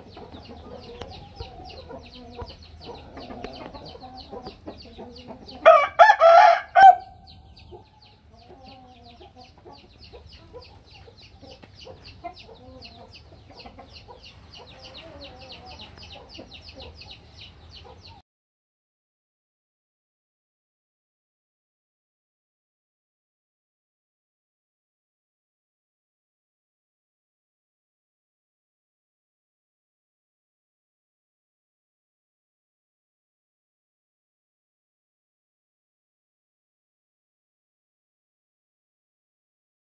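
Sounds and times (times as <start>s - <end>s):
chickens clucking: 0.0s - 18.2s
rooster crowing: 5.6s - 7.2s.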